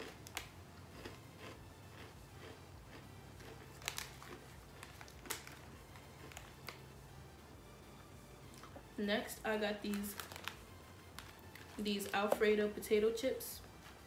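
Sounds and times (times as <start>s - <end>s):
plastic packaging crinkling: 3.4s - 6.9s, 9.8s - 12.4s.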